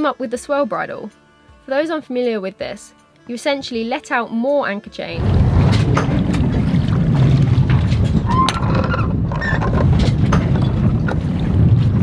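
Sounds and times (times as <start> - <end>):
wind buffeting microphone: 5.1 - 12.0
faint squeaks: 8.0 - 10.1.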